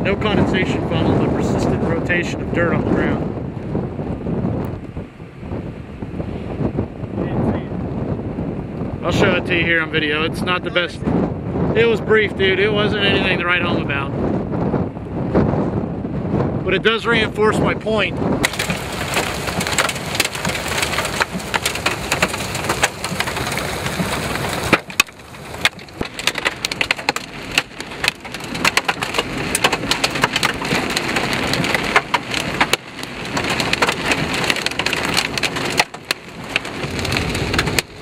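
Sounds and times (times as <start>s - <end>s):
hailstones knocking on vehicle: 18.4s - 38.0s
rain pattering on vehicle: 18.4s - 38.0s.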